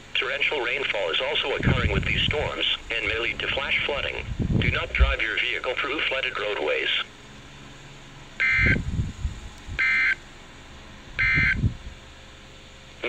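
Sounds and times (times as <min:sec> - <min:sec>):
low rumble: 0:01.1 - 0:06.4, 0:07.3 - 0:09.8, 0:10.6 - 0:12.2
harsh digital data tones: 0:08.4 - 0:08.8, 0:11.2 - 0:11.6.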